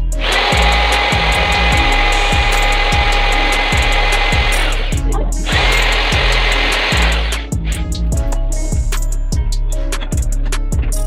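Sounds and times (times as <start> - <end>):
electric drill running: 0.0 - 7.8
background music with steady beat: 0.0 - 11.0.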